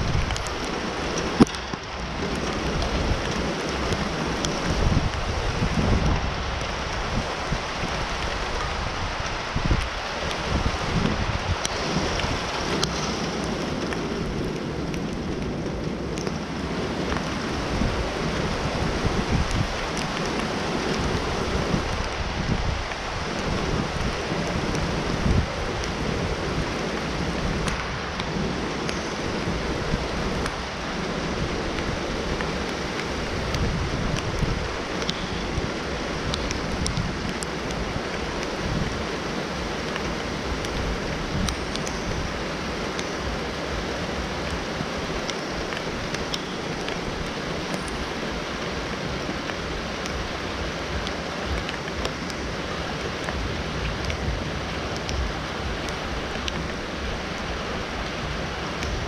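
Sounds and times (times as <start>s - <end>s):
steady rain hiss: 0.0s - 59.0s
faint ticks: 34.1s - 35.4s, 55.0s - 56.7s.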